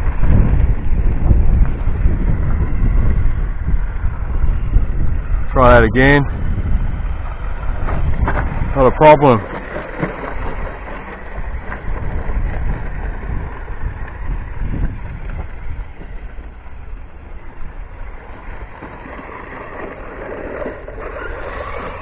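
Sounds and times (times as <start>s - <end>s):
wind rumbling on microphone: 0.0s - 22.0s
toy truck electric motor and gears: 18.8s - 22.0s.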